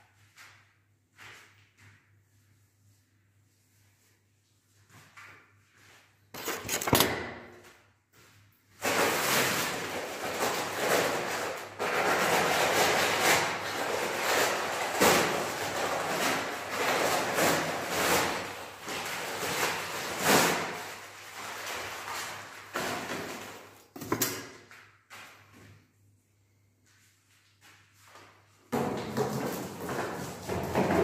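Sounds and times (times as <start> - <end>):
paper sack crinkling and tearing: 8.8 - 23.7.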